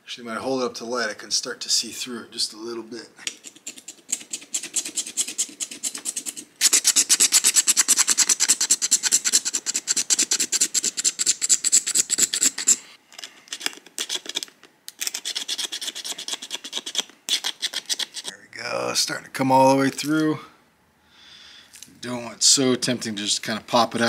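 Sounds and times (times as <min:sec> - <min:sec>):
stone tool scraping bone: 0:03.3 - 0:12.8, 0:13.5 - 0:18.3.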